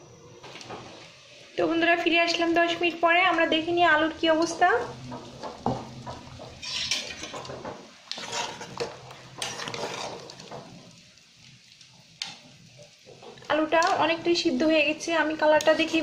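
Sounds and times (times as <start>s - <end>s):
water boiling: 0.0s - 16.0s
metal spoon clinking on pot: 6.6s - 7.4s.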